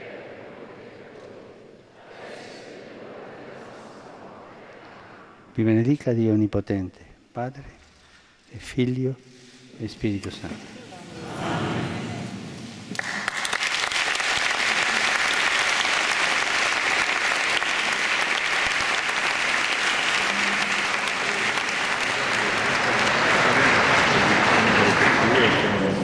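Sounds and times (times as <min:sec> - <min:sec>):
audience applauding: 0:12.9 - 0:26.0.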